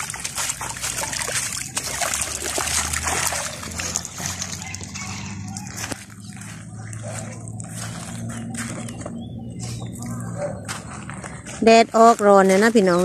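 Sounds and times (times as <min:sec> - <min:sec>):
shallow water splashing: 0:00.0 - 0:10.3.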